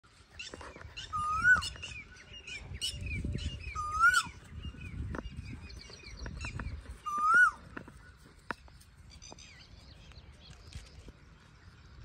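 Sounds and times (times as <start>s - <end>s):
small birds chirping: 0.1s - 12.0s
koel whistled call: 3.7s - 4.4s, 7.0s - 7.6s.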